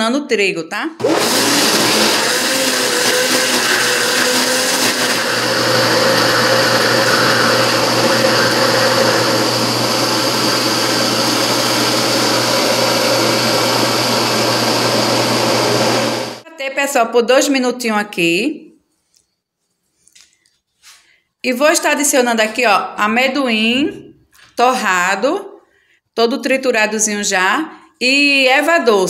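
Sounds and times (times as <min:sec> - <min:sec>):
blender motor churning batter: 0:01.0 - 0:16.4.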